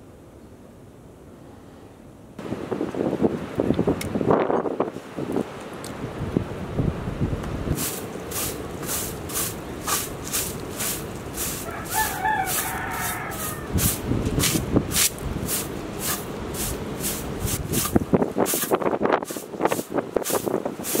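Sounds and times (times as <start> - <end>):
straw broom sweeping: 7.7 - 21.0
rooster crowing: 11.4 - 14.0.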